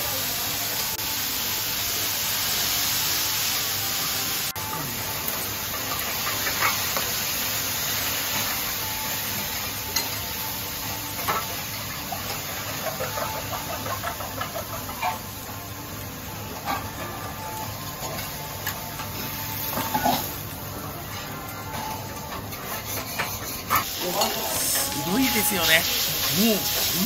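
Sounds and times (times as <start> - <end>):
noodles sizzling on griddle: 0.0 - 27.0
metal spatulas scraping: 22.5 - 27.0.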